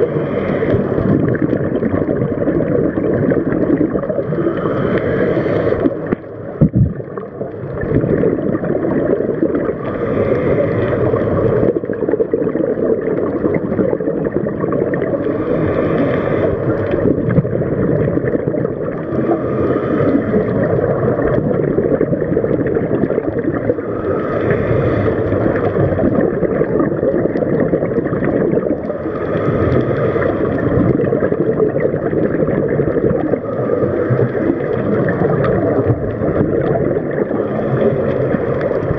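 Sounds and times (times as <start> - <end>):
scuba regulator breathing: 0.0 - 1.7, 4.0 - 6.3, 9.5 - 12.0, 15.0 - 18.2, 18.9 - 21.9, 22.5 - 26.6, 28.4 - 31.6, 37.0 - 38.9
exhaled bubbles gurgling: 0.0 - 38.9
low underwater rumble: 0.0 - 38.9.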